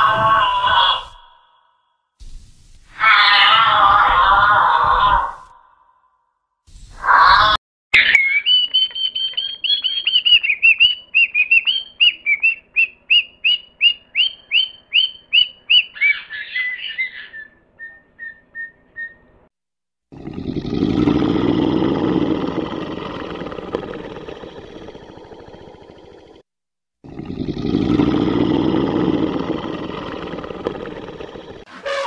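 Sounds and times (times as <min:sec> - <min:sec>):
bird whistling downslurred notes: 0:08.0 - 0:19.3.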